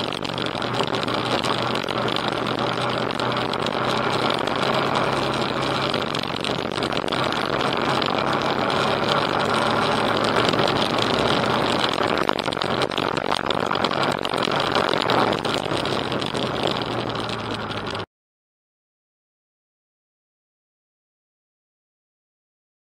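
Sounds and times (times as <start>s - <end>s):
motorcycle engine running: 0.0s - 18.1s
wind and road noise: 0.0s - 18.1s.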